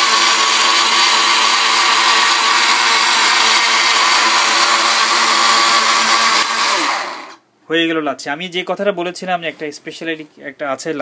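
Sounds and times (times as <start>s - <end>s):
blender motor whining: 0.0s - 7.4s.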